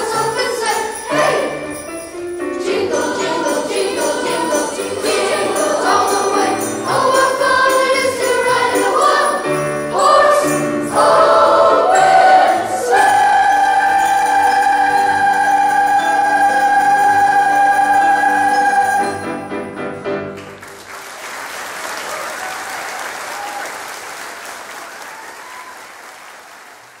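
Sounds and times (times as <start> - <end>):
boys' choir holding a chord: 2.6 - 19.2
audience applause: 20.3 - 27.0.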